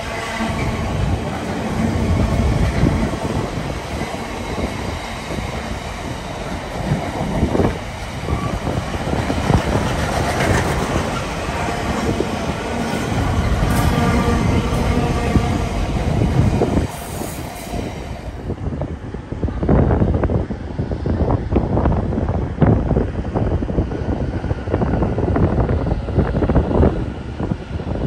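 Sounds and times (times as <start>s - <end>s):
wheels clacking on rail: 0.0s - 18.2s
train wheels rumbling on rail: 0.0s - 28.0s.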